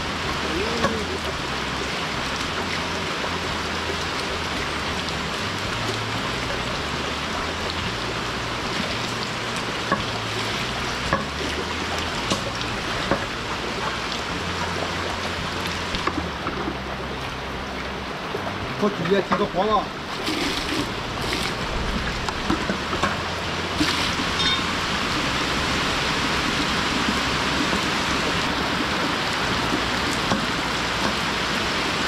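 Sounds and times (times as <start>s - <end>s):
rain falling on concrete: 0.0s - 32.0s
sharp knocks of bamboo and bucket: 11.1s - 11.4s, 12.2s - 13.3s.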